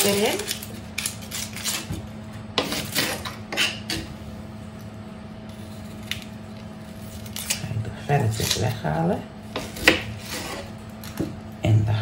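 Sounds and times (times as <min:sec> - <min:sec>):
onion skin peeling: 0:00.0 - 0:03.8, 0:05.4 - 0:08.9
faint steady hum: 0:00.0 - 0:12.0.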